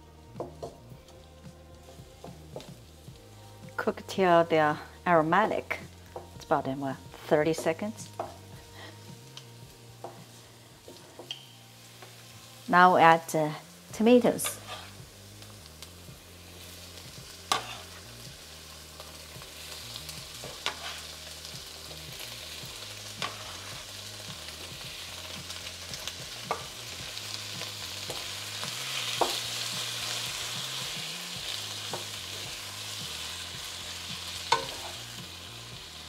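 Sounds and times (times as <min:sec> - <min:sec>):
tomatoes sizzling in oil: 0:00.0 - 0:36.0
wooden spatula knocking wok: 0:00.4 - 0:00.8, 0:07.5 - 0:08.4.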